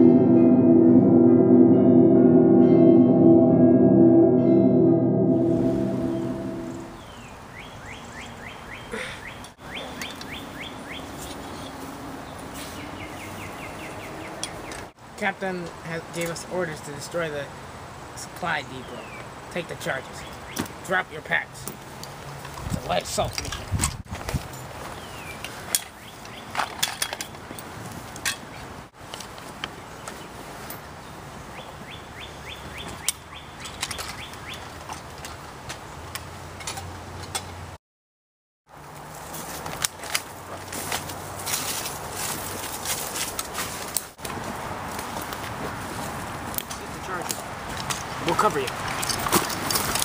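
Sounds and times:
bird chirping: 0:06.7 - 0:14.9.

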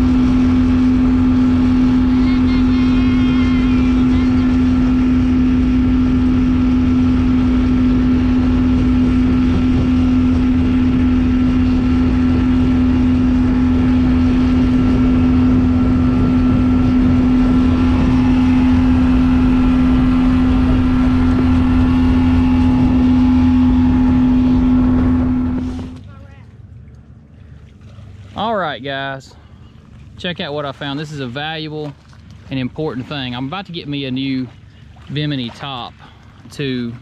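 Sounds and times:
boat motor humming: 0:00.0 - 0:37.0
water rushing: 0:00.0 - 0:37.0
wind rushing: 0:04.7 - 0:25.9.

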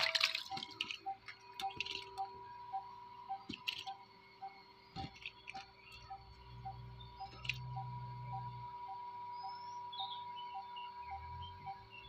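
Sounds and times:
background music with ticking pulse: 0:00.0 - 0:12.0.

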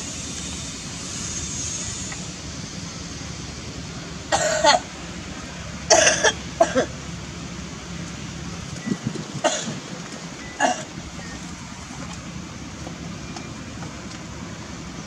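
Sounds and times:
person coughing: 0:04.3 - 0:04.8, 0:05.9 - 0:06.9, 0:09.4 - 0:09.8.

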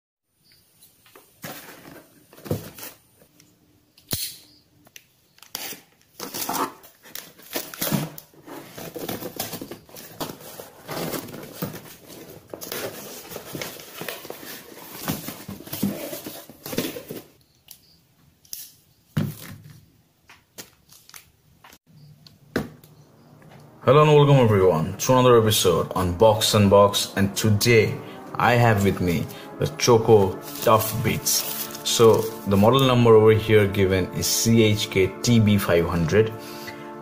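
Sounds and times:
cardboard and wrapping rustling: 0:01.2 - 0:03.4, 0:05.5 - 0:17.4, 0:30.1 - 0:32.9
packing tape tearing: 0:05.3 - 0:17.2.

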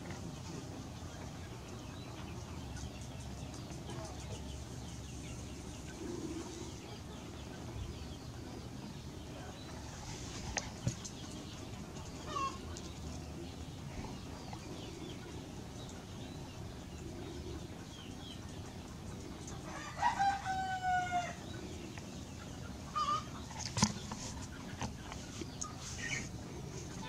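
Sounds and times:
rooster crowing: 0:19.7 - 0:21.4.

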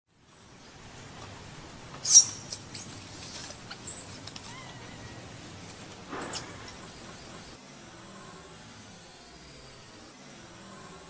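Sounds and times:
baby monkey shrieking: 0:02.0 - 0:05.2, 0:06.2 - 0:06.8.

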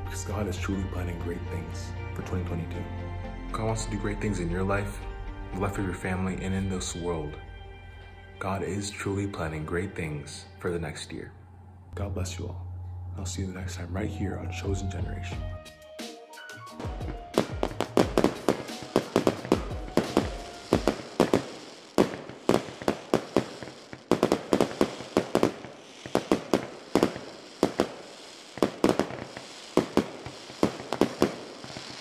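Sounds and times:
fireworks bangs: 0:16.8 - 0:32.0.

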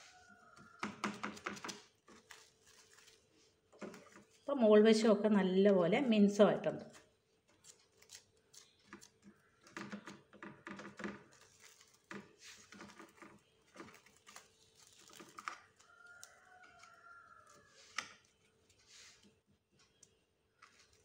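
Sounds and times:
cling film crinkling: 0:00.0 - 0:04.6, 0:06.9 - 0:21.0.

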